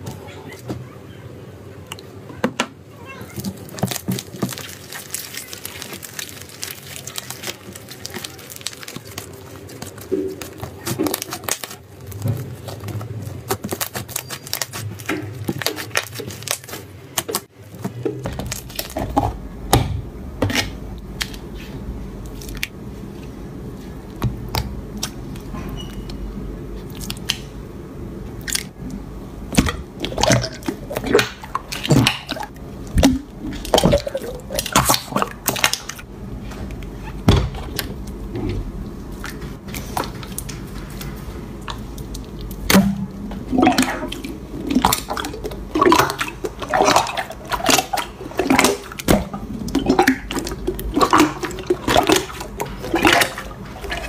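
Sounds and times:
slime squished by hand: 0:03.4 - 0:17.5.

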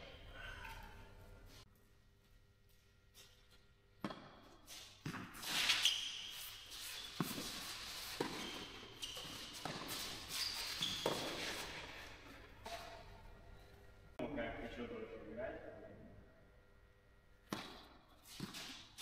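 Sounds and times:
tennis ball bouncing: 0:04.0 - 0:05.4, 0:08.2 - 0:08.7, 0:17.4 - 0:18.6
racket hitting tennis ball: 0:04.0 - 0:05.8, 0:07.1 - 0:10.3, 0:11.0 - 0:11.8, 0:17.4 - 0:19.0
shoe squeaks: 0:04.6 - 0:13.0.

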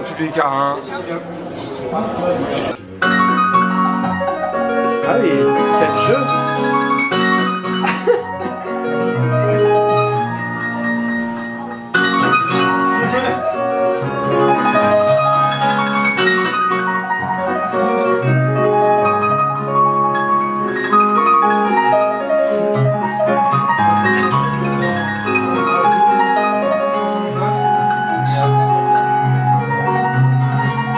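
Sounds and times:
piano playing: 0:02.9 - 0:30.9.

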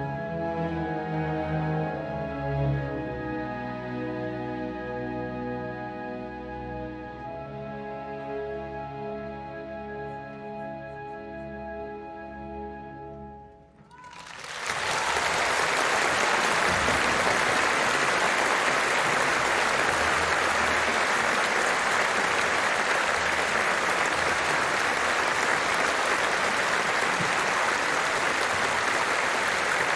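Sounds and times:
audience applause: 0:13.8 - 0:29.9.

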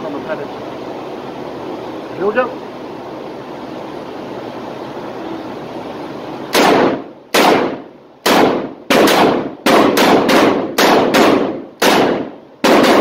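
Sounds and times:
revolver shots echoing: 0:06.5 - 0:13.0.

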